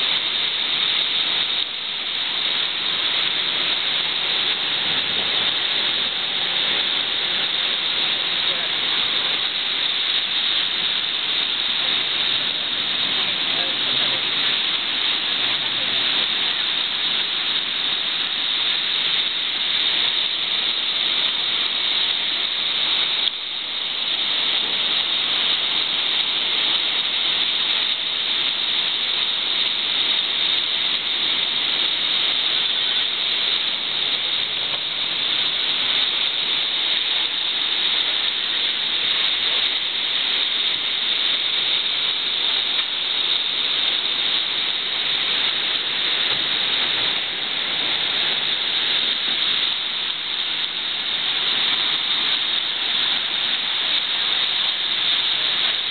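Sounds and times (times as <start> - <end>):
train rushing along rails: 11.8 - 16.5.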